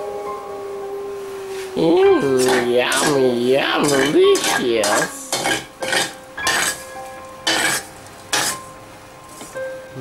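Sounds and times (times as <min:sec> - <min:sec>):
metal ladle scraping a plate: 0:03.8 - 0:06.8, 0:07.5 - 0:08.6.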